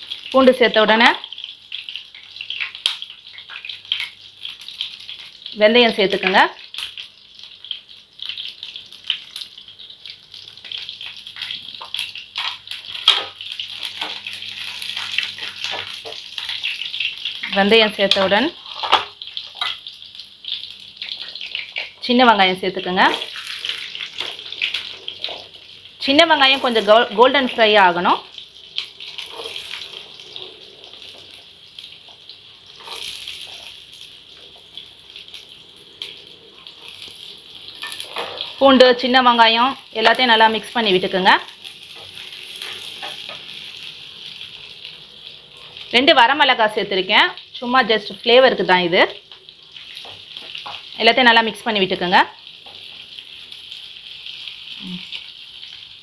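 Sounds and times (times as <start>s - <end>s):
garlic sizzling in hot oil: 0.0s - 56.0s
wooden spatula stirring: 29.1s - 31.4s.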